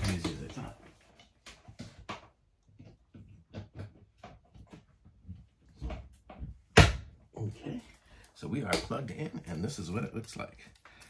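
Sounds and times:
plugs and cords clicking: 0:07.8 - 0:11.0.

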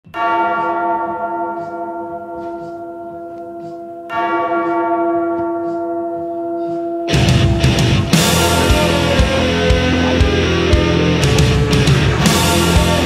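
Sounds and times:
bell ringing: 0:00.1 - 0:13.0.

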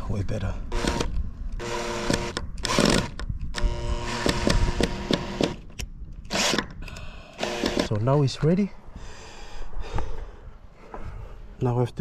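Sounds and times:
power drill motor running: 0:00.7 - 0:05.6, 0:06.3 - 0:07.9.

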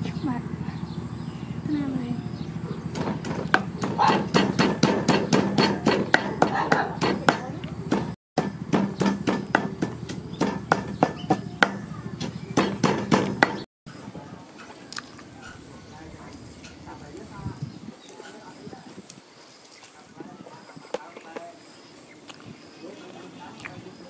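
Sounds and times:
cleaver chopping meat on board: 0:03.0 - 0:13.6.

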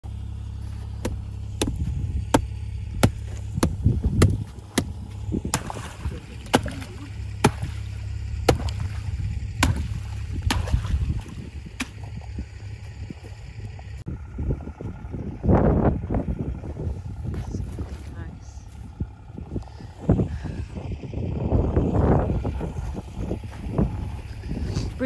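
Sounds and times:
sledgehammer breaking ice: 0:08.5 - 0:11.1.

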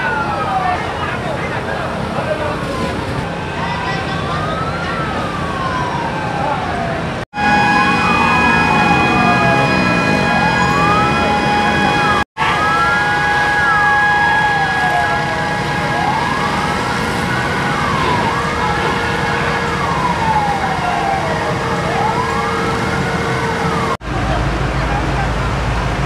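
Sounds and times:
fire engine sirens wailing: 0:00.0 - 0:26.0
steady high held tone: 0:07.4 - 0:22.7.

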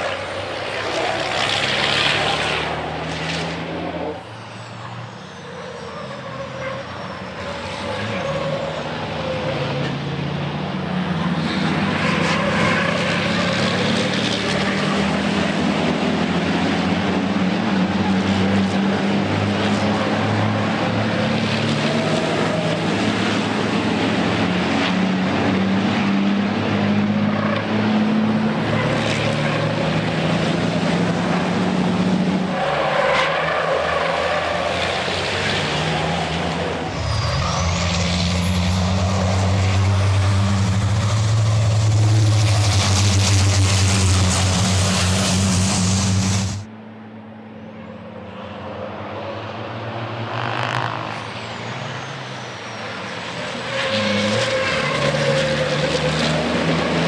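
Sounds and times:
truck diesel engines droning: 0:00.0 - 0:57.0.

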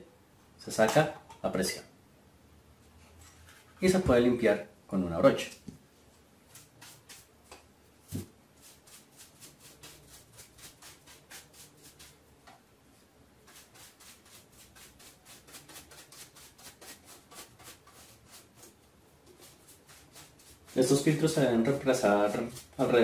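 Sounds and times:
brush bristles brushing filter: 0:06.0 - 0:07.4, 0:08.0 - 0:23.0.

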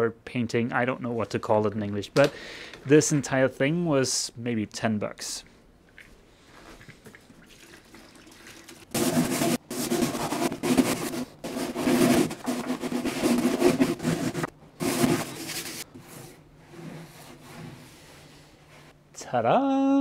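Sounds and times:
brush scrubbing metal: 0:08.9 - 0:18.9.

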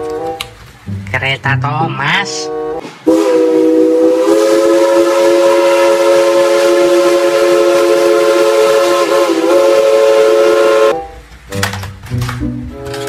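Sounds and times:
steam locomotive whistle: 0:00.0 - 0:00.4, 0:02.2 - 0:11.3.

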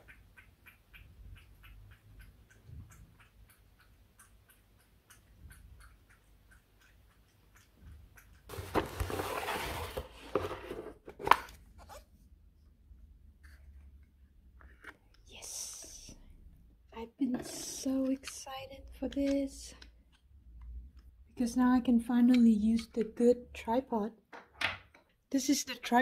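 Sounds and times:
cardboard box rustling: 0:08.5 - 0:12.0.

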